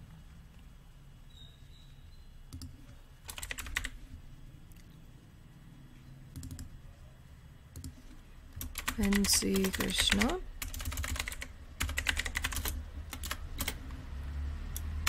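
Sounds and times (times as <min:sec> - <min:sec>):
low steady hum: 0:00.0 - 0:15.0
typing on computer keyboard: 0:02.5 - 0:04.0, 0:06.3 - 0:06.7, 0:07.7 - 0:08.0, 0:08.6 - 0:13.9.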